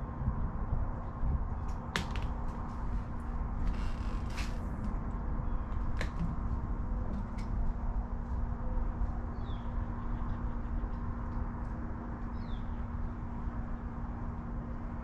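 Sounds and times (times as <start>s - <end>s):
faint constant hum: 0.0s - 15.0s
low outdoor rumble: 0.0s - 15.0s.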